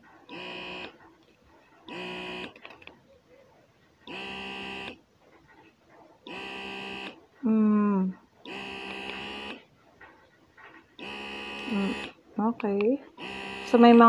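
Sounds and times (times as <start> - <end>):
breast pump motor buzzing: 0.3 - 1.0, 1.9 - 2.6, 4.1 - 5.0, 6.3 - 7.2, 8.5 - 9.7, 11.0 - 12.2, 13.1 - 14.0.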